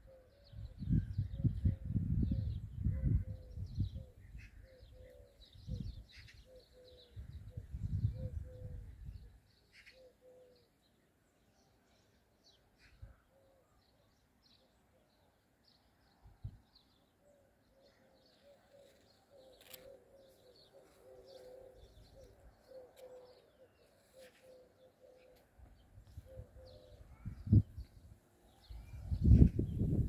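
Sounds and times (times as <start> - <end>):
dove cooing: 0.0 - 10.7, 17.8 - 27.7
small birds chirping: 0.0 - 30.0.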